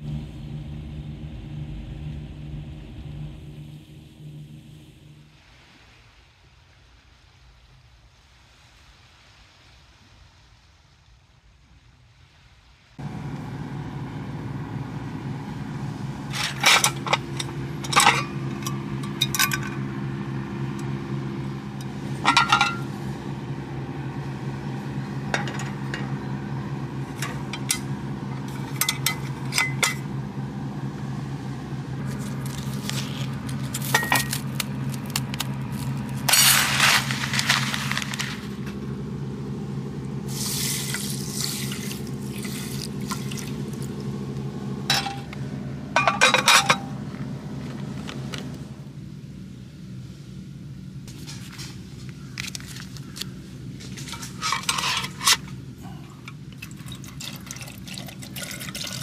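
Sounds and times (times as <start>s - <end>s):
steady low hum: 0.0s - 6.0s, 13.0s - 59.0s.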